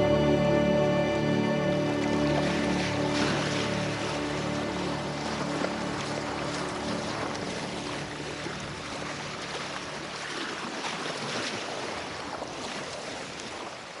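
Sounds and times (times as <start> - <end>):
music track: 0.0 - 9.8
sea water rushing: 0.0 - 14.0
wind: 0.0 - 14.0.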